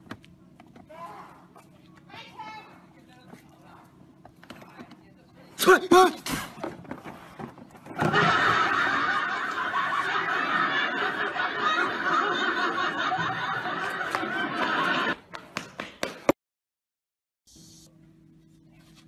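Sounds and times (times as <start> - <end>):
crowd laughing: 7.8 - 15.6.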